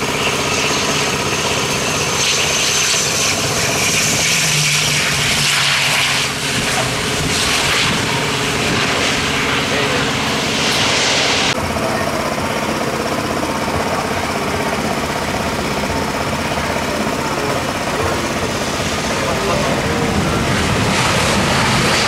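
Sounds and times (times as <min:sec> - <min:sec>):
thin high whine: 0:00.0 - 0:12.3
turboprop engines droning: 0:00.0 - 0:22.0.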